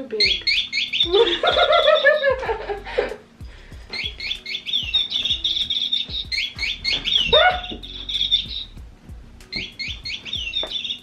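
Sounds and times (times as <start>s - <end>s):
background music beat: 0.0s - 11.0s
electronic bird chirps: 0.2s - 2.3s, 3.9s - 8.8s, 9.5s - 11.0s.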